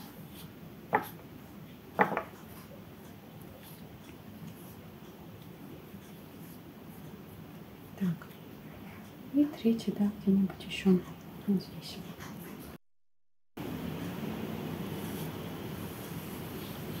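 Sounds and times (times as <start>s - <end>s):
paintbrush rubbing on paper: 14.8s - 17.0s.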